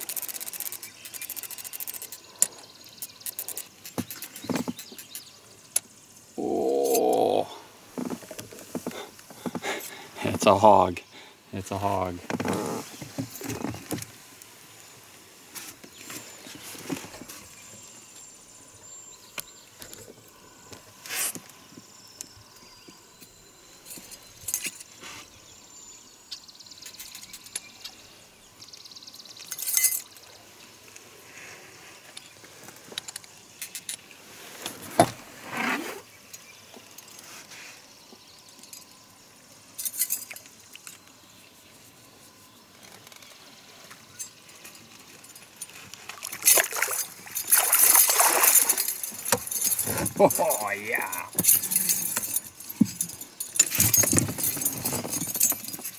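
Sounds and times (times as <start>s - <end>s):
rod and reel knocks and clinks: 0.0s - 5.9s, 22.2s - 25.0s, 29.4s - 30.3s, 39.8s - 41.1s, 44.1s - 55.9s
fish splashing: 46.0s - 49.3s.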